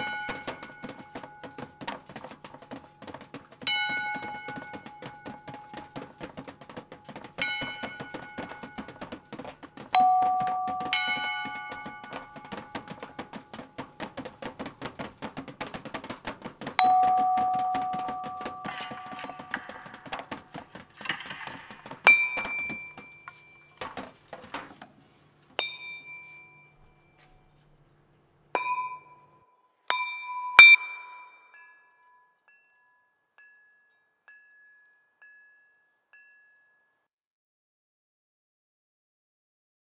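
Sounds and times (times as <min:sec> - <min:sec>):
high chime strikes: 0:09.9 - 0:13.1, 0:16.8 - 0:20.4, 0:28.6 - 0:36.8
scuffling and rustling: 0:18.6 - 0:25.4.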